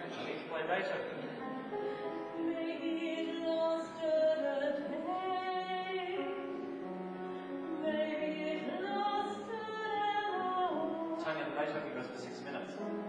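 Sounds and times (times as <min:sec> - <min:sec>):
grand piano accompaniment: 0:00.0 - 0:13.0
woman singing operatically: 0:02.4 - 0:06.5, 0:07.7 - 0:11.2.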